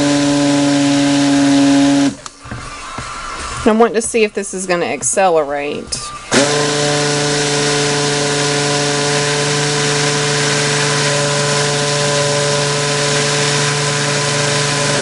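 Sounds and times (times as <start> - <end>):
stick blender motor hum: 0.0 - 2.7, 6.3 - 15.0.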